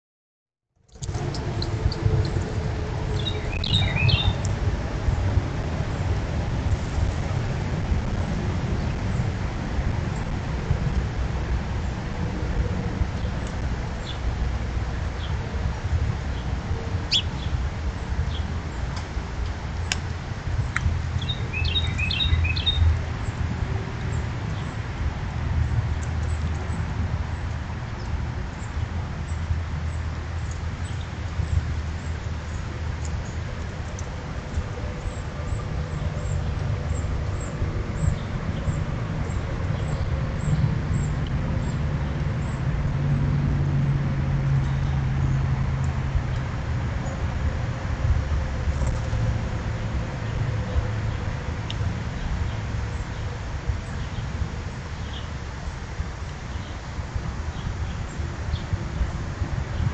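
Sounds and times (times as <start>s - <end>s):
steady low rumble: 0.9s - 59.9s
wild birds chirping: 1.2s - 4.5s, 17.1s - 18.9s, 20.6s - 23.4s.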